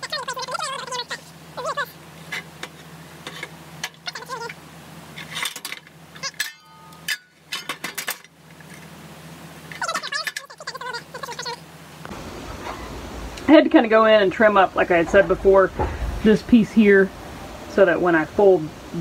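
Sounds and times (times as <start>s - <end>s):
steady low hum: 0.0s - 19.0s
metal clinks and clanks: 5.2s - 8.8s.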